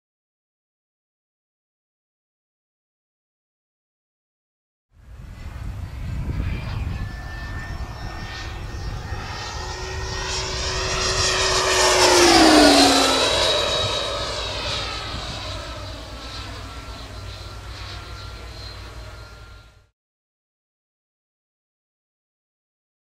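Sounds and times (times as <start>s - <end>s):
model jet fan whining past: 5.0s - 19.9s.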